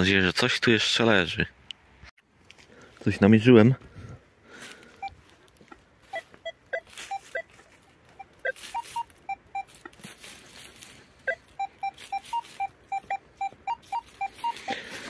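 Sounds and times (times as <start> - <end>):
metal detector beeps: 5.0 - 5.2, 6.1 - 15.0.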